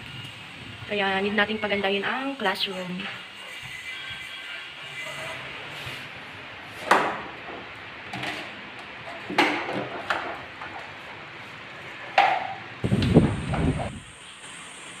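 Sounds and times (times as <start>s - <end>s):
steady low hiss: 12.7s - 15.0s.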